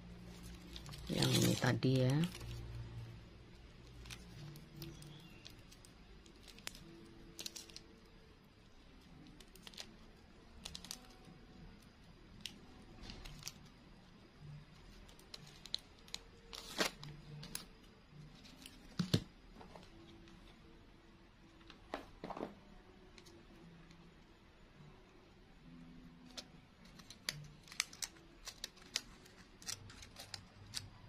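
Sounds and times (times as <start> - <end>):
plastic strip crinkling: 0.2 - 8.1, 9.0 - 13.7, 14.5 - 17.7, 26.2 - 31.0.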